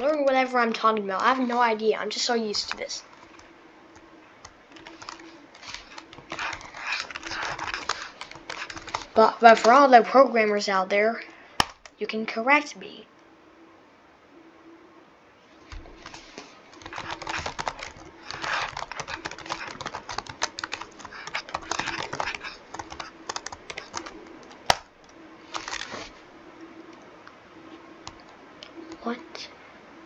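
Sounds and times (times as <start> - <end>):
typing on computer keyboard: 4.4 - 9.8, 16.7 - 25.9.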